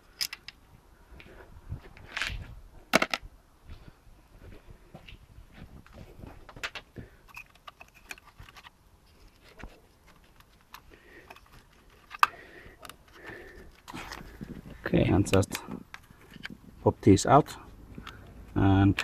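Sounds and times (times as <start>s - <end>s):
plastic connectors clicking and rattling: 6.6s - 16.6s.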